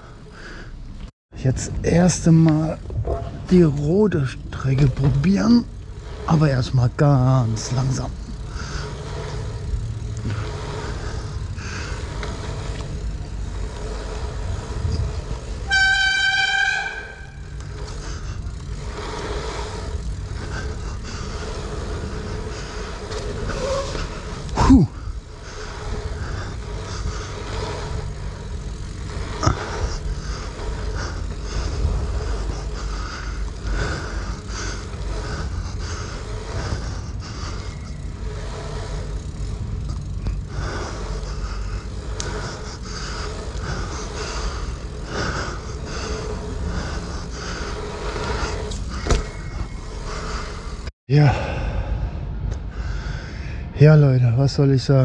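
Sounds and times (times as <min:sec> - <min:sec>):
bike tyres rumbling: 0:00.0 - 0:55.0
bicycle brake squealing: 0:03.2 - 0:50.9
short falling squeal: 0:48.9 - 0:50.3.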